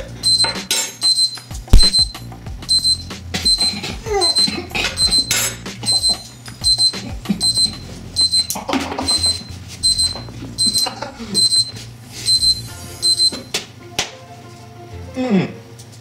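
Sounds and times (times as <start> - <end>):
background music with bass: 0.0 - 0.7, 1.5 - 13.5
electronic alarm beeping: 0.2 - 13.5.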